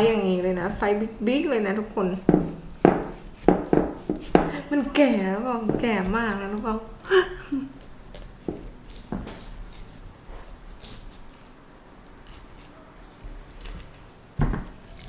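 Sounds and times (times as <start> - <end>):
knife scraping vegetable skin: 2.1 - 4.5, 7.8 - 14.1, 14.8 - 15.0.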